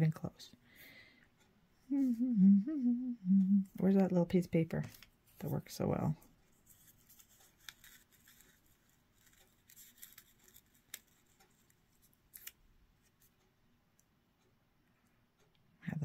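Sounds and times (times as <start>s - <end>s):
paper rustling: 6.6s - 12.6s.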